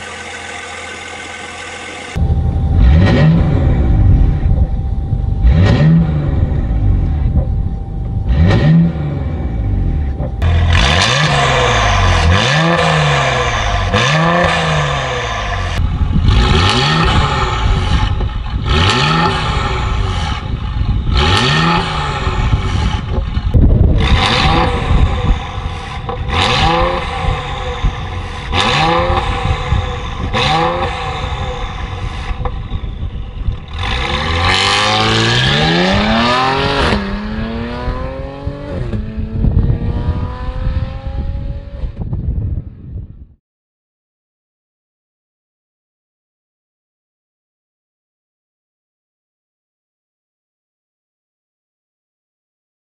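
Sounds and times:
car accelerating away: 0:00.0 - 0:23.2, 0:23.8 - 0:42.0
car engine revving: 0:00.0 - 0:42.0.

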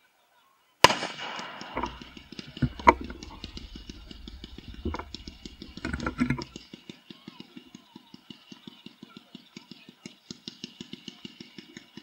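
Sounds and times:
fireworks shells bursting: 0:00.9 - 0:06.8
rapid even ticking: 0:01.2 - 0:06.7.

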